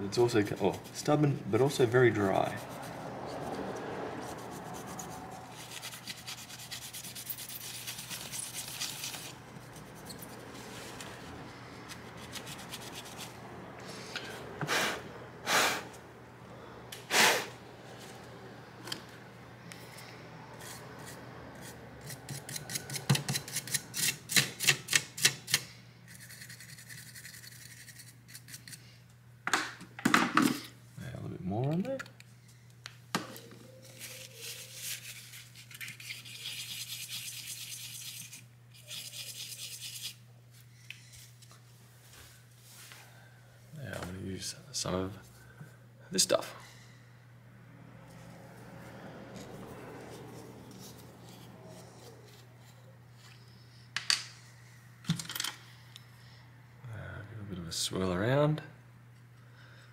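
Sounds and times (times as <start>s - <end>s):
tissue rubbing: 33.8s - 36.4s.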